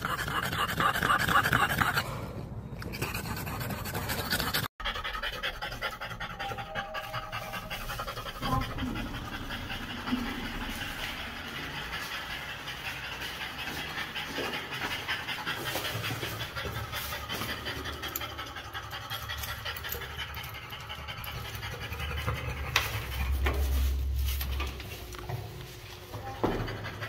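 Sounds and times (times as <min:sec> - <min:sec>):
dog panting: 0:00.0 - 0:27.0
low rumble: 0:05.8 - 0:14.1.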